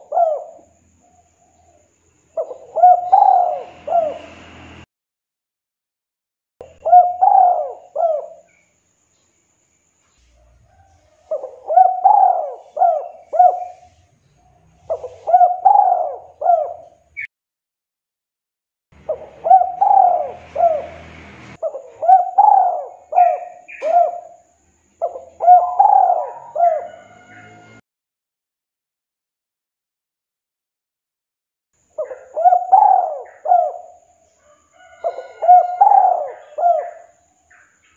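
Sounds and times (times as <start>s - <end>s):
dove cooing: 0.0s - 4.3s, 6.6s - 8.6s, 10.7s - 17.0s, 19.0s - 27.8s, 32.0s - 34.1s, 34.8s - 37.3s.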